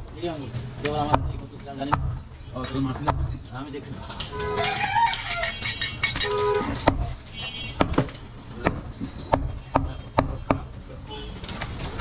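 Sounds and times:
cleaver chopping meat on wood: 0:00.8 - 0:02.2, 0:06.1 - 0:07.2, 0:07.8 - 0:10.7.

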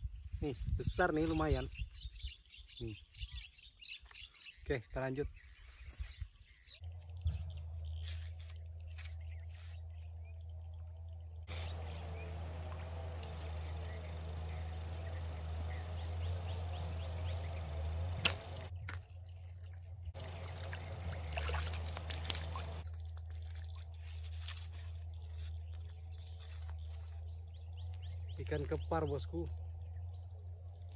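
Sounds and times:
steady low hum: 0:06.5 - 0:28.5
sharp click: 0:18.2 - 0:18.6.

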